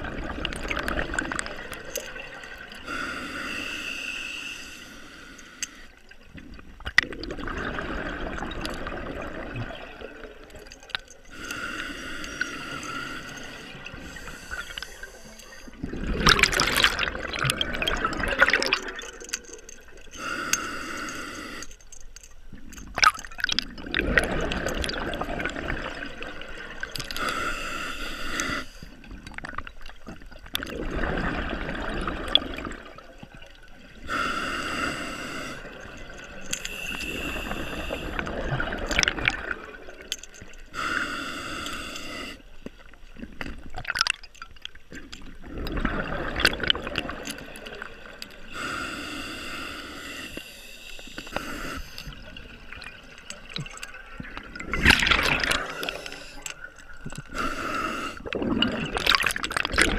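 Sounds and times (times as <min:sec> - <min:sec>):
exhaled bubbles gushing: 0:00.0 - 0:02.9, 0:06.2 - 0:11.3, 0:13.4 - 0:20.2, 0:22.6 - 0:27.3, 0:29.0 - 0:34.1, 0:35.6 - 0:40.6, 0:43.1 - 0:48.6, 0:52.0 - 0:57.5, 0:58.1 - 0:59.9
diver breathing through regulator: 0:02.8 - 0:06.0, 0:11.3 - 0:15.8, 0:20.1 - 0:21.9, 0:27.1 - 0:29.0, 0:34.0 - 0:38.4, 0:40.7 - 0:42.5, 0:48.3 - 0:52.3, 0:55.2 - 0:59.9.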